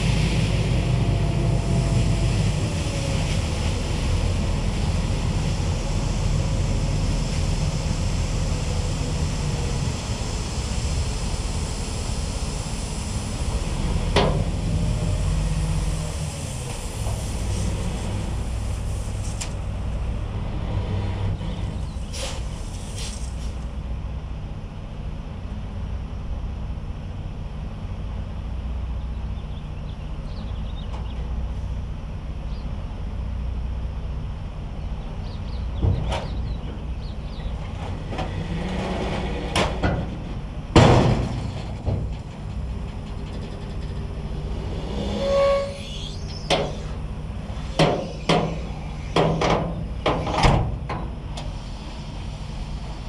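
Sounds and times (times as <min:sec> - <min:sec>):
dump truck engine running: 0:00.0 - 0:53.0
sand pouring hiss: 0:22.0 - 0:23.7.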